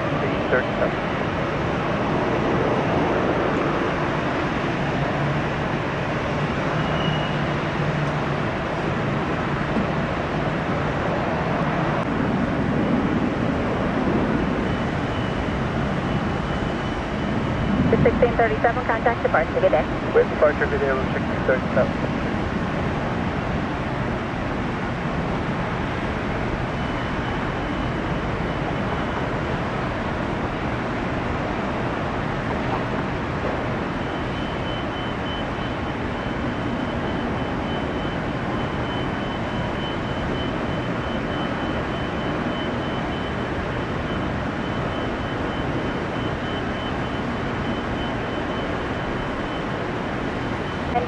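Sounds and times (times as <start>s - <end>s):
jet engines roaring: 0.0s - 51.0s
road traffic: 0.0s - 51.0s
faint high whine: 12.8s - 51.0s.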